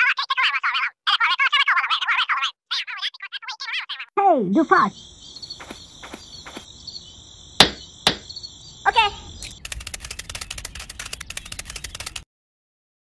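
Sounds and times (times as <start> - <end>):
insect chirping: 4.2 - 12.2
fast run of ticks: 5.6 - 6.7, 9.4 - 12.2
hand tool knocking on ground: 7.6 - 8.3.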